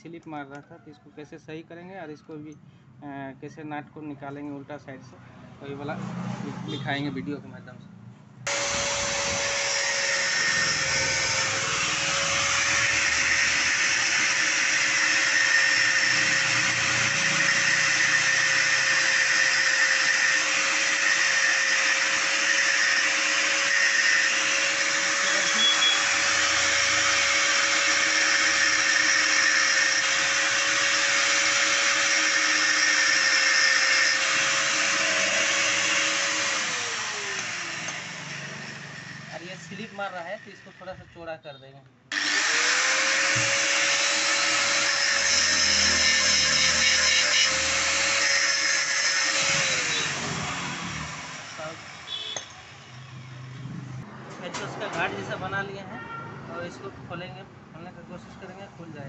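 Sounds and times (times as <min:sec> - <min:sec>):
angle grinder grinding steel: 0:08.5 - 0:40.9, 0:42.1 - 0:53.4
grinder motor winding down: 0:08.5 - 0:40.9, 0:42.1 - 0:53.6.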